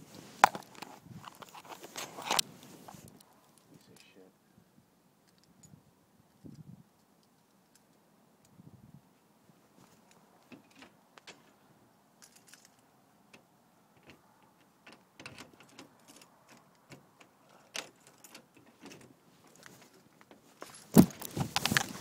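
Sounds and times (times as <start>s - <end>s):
phone handling clicks and rustles: 0.1s - 4.1s, 14.0s - 22.0s.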